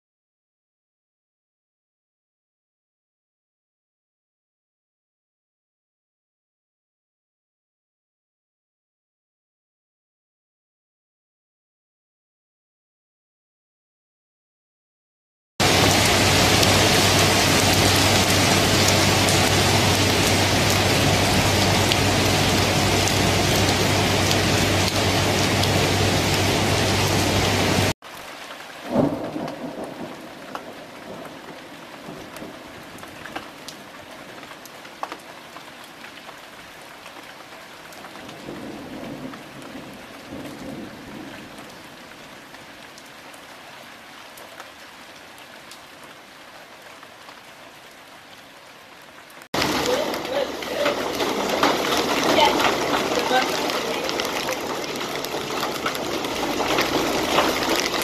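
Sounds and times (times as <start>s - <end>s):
thunderclap with rumbling: 15.6s - 27.9s, 28.9s - 33.0s, 38.2s - 41.8s, 49.6s - 58.0s
heavy rain downpour: 15.6s - 58.0s
light rain: 15.6s - 58.0s
low thunder rumble: 28.9s - 33.1s, 38.3s - 42.0s, 49.6s - 58.0s.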